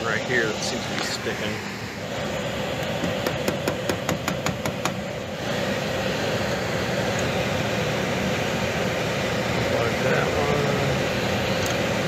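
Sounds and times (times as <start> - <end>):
air handler humming: 0.0 - 12.0.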